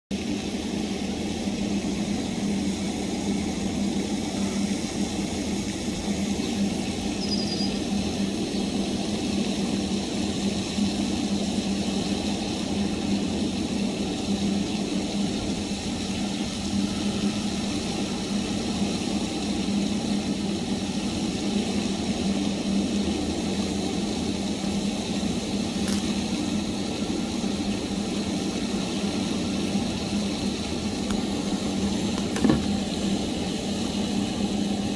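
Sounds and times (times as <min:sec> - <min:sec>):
motor drone with low hum: 0:00.1 - 0:34.9
short high chirp: 0:07.2 - 0:07.8.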